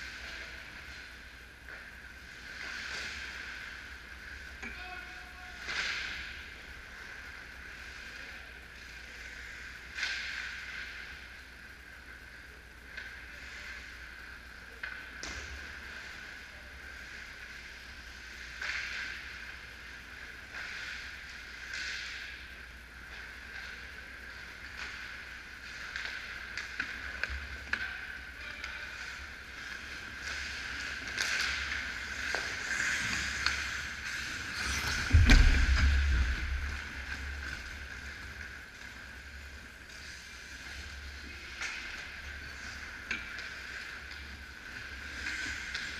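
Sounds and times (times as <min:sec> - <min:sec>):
steady high hum: 0:00.0 - 0:45.9
sticks and puck clacking: 0:09.8 - 0:11.2, 0:17.0 - 0:19.6, 0:20.4 - 0:22.4, 0:23.1 - 0:39.0, 0:39.9 - 0:45.9
skate blades scraping ice: 0:29.7 - 0:37.7
heavy low thump: 0:35.0 - 0:36.9.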